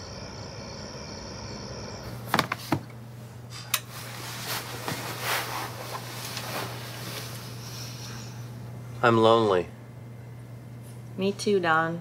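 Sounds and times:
steady low hum: 0.0 - 12.0
soft rustling: 3.9 - 8.0.

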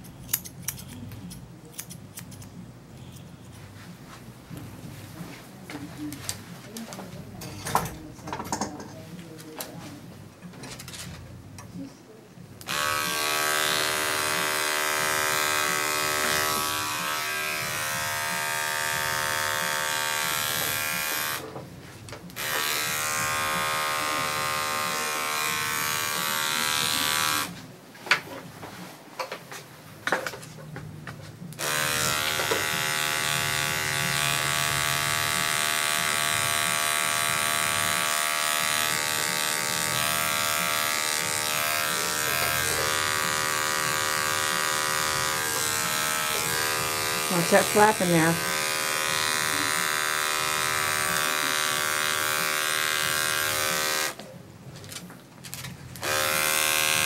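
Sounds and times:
electric clipper humming: 12.6 - 21.5, 22.2 - 27.6, 31.5 - 54.2, 56.0 - 57.0.

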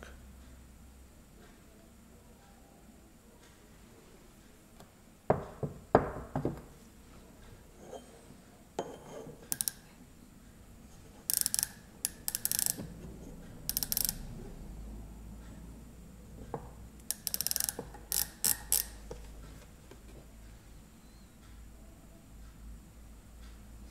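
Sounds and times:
micrometer ratchet clicking: 9.5 - 9.9, 11.2 - 14.4, 17.0 - 19.2.

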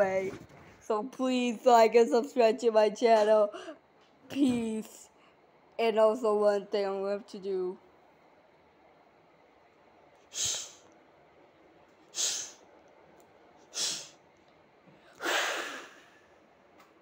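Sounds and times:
person exhaling sharply: 10.3 - 10.8, 12.2 - 12.6, 13.8 - 14.2, 15.2 - 16.2.

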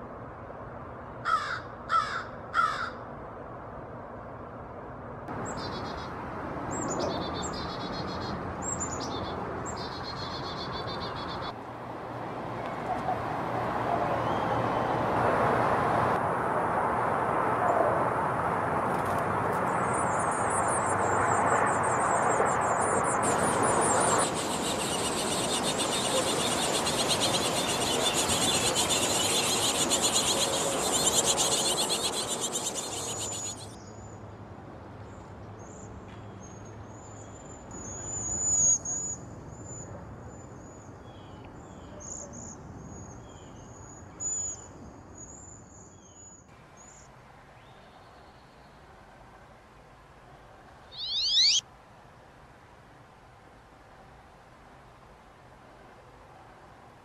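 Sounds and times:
songbirds high-pitched calls: 5.4 - 11.6, 21.7 - 34.0, 36.4 - 47.0, 50.9 - 51.6
hissing buzzing insect chorus: 23.3 - 33.6
rapid high pulsing: 23.3 - 33.7.

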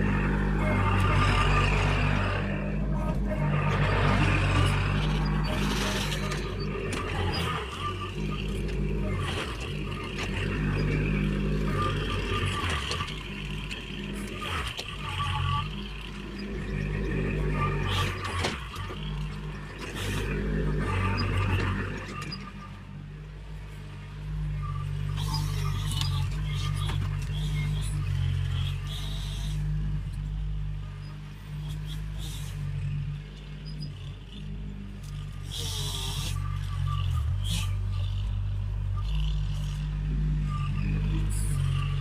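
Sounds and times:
diesel engine running: 0.0 - 42.0.

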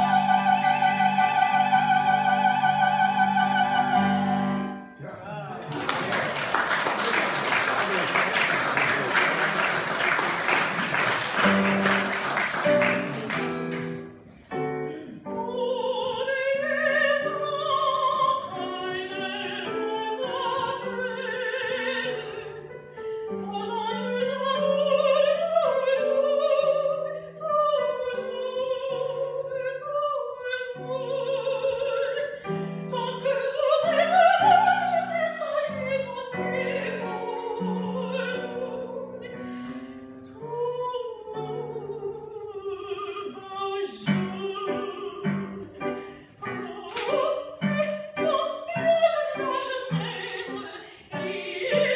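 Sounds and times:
woman singing opera: 0.0 - 4.8, 14.9 - 51.9
applause: 5.6 - 14.1.

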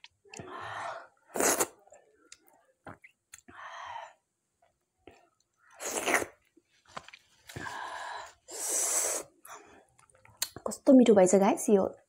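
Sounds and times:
small mouth clicks: 10.0 - 10.7.

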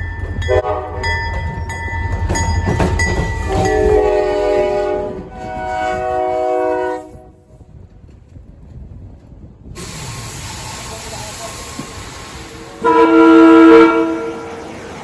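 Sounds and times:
rolling train with wheel clicks: 0.0 - 4.3, 7.6 - 12.9
train horn blasts: 0.5 - 1.2, 3.4 - 7.4, 12.8 - 14.6.

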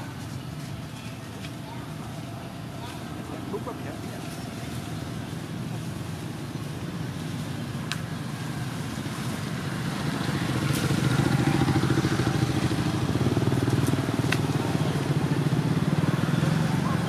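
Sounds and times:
motorcycle engine running: 4.5 - 17.0.

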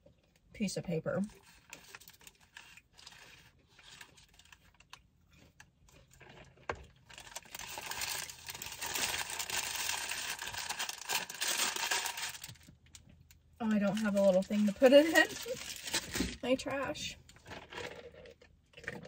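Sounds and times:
paper wrappers crinkling: 1.4 - 5.0, 6.1 - 13.0, 13.6 - 16.8.

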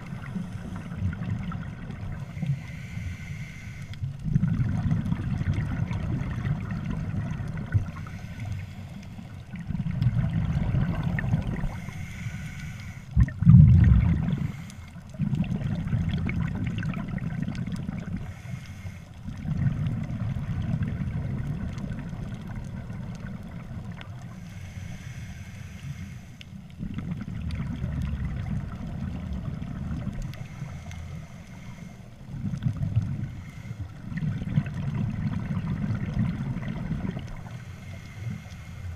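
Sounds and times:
underwater regulator bubbling exhale: 9.6 - 12.2, 13.1 - 18.3.

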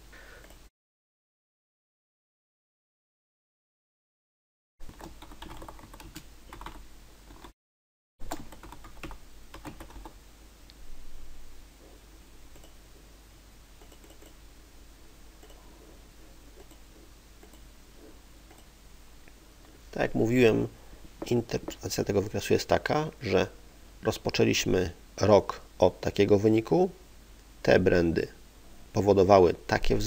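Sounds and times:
faint steady hiss: 0.0 - 0.7, 8.2 - 30.0
typing on a computer keyboard: 4.9 - 7.5, 8.2 - 10.2, 13.8 - 14.4.

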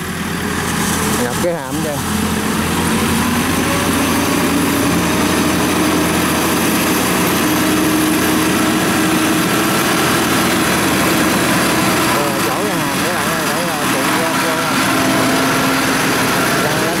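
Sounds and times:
baler engine running under load: 0.0 - 17.0.

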